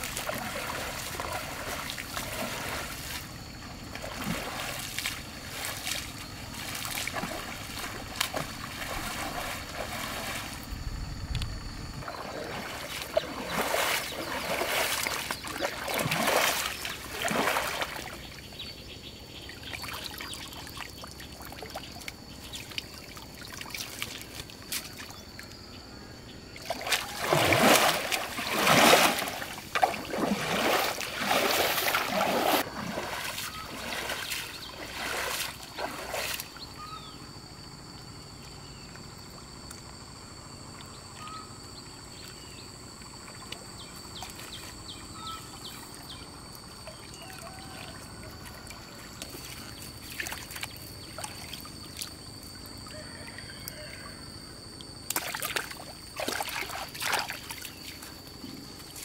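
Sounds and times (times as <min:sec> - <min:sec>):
water sloshing and splashing: 0:00.0 - 0:18.6, 0:19.4 - 0:25.6, 0:26.5 - 0:37.0, 0:41.9 - 0:53.4, 0:54.7 - 0:59.0.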